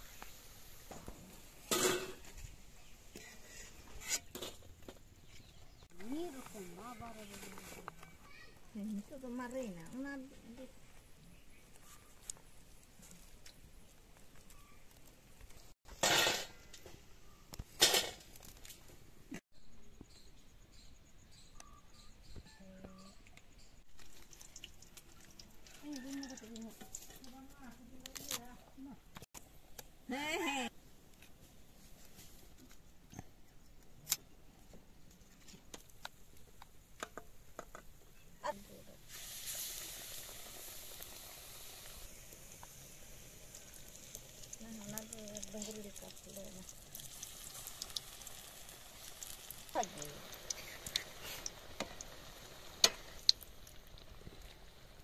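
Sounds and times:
frying in hot oil sizzling: 0.0s - 4.7s, 8.4s - 16.8s, 23.9s - 28.6s, 38.4s - 55.0s.

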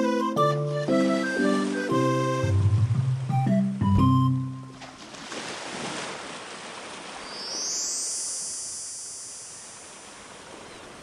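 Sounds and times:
ocean surf on beach: 4.8s - 11.0s.

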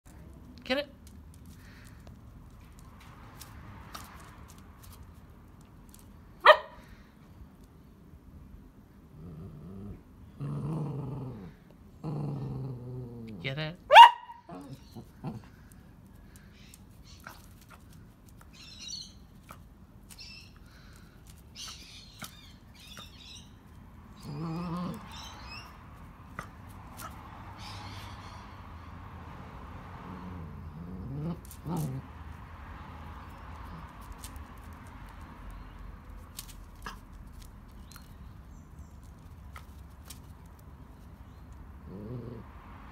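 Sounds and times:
low outdoor rumble: 0.0s - 42.9s
dog claws clicking on concrete: 0.1s - 6.2s, 15.2s - 18.6s, 19.3s - 25.1s, 31.3s - 32.1s, 33.2s - 41.1s
dog growling low: 9.1s - 13.5s, 14.5s - 15.6s, 24.2s - 25.2s, 30.0s - 32.1s, 41.8s - 42.6s.

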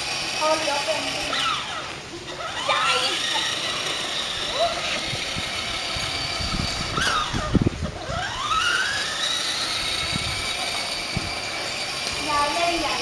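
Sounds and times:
toy car electric motor whining: 0.0s - 13.0s.

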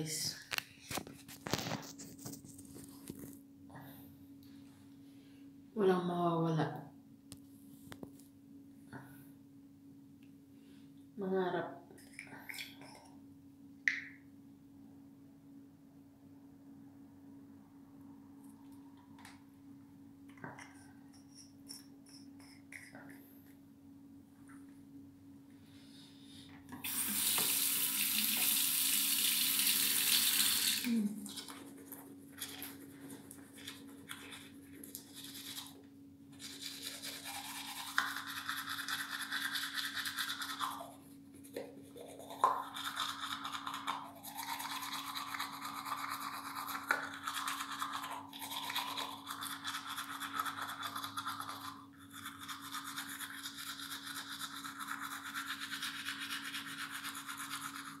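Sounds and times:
tap running: 26.7s - 28.6s
toothbrush scrubbing teeth: 26.8s - 58.0s.

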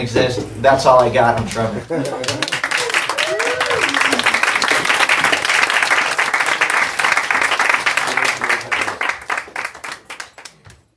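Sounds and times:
audience applauding: 1.9s - 10.6s.

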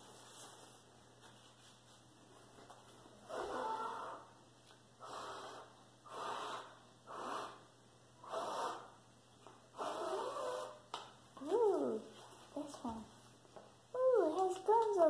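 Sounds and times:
person blowing breathy puffs: 5.0s - 9.0s.

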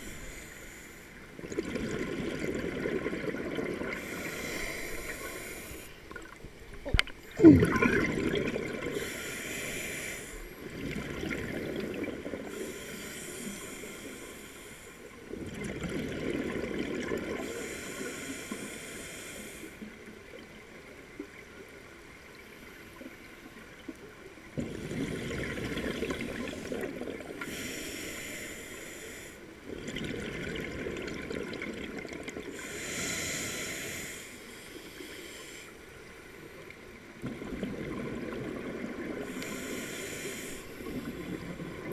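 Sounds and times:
regulator inhale hiss: 0.0s - 1.3s, 3.9s - 6.0s, 8.9s - 10.6s, 12.4s - 15.2s, 17.4s - 19.9s, 27.4s - 29.6s, 32.5s - 36.0s, 39.2s - 41.5s
diver exhaling bubbles: 6.9s - 9.3s.

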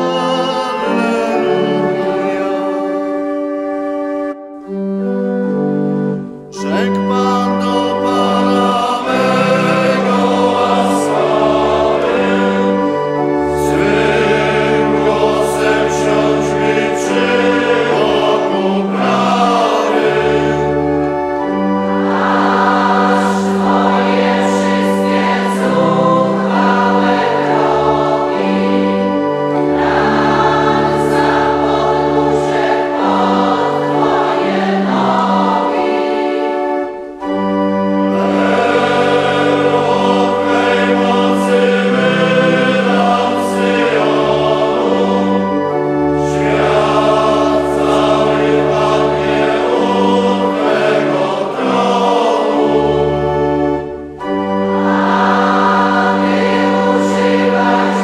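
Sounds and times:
choir singing a chant: 0.0s - 3.3s, 6.4s - 58.0s
pipe organ bass notes: 0.0s - 58.0s.

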